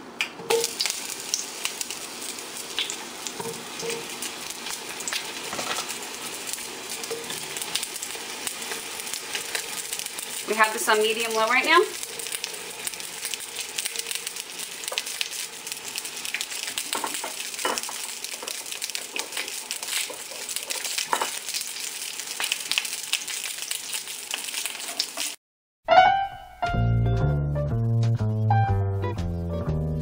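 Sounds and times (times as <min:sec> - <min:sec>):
onions sizzling in oil: 0:00.4 - 0:25.4
plucked-string music: 0:25.9 - 0:30.0.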